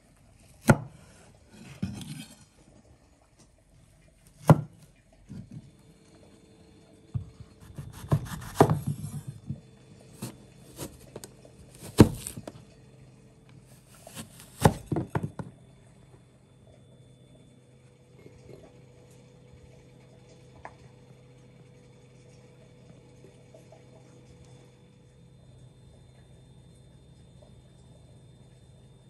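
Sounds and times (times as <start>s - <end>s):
knife knocking on cutting board: 14.6s - 15.5s.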